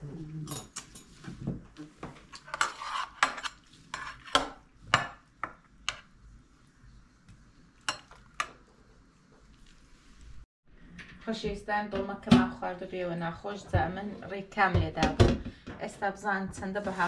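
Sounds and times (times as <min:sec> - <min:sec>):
cutlery clinking on metal tray: 0:02.3 - 0:05.2.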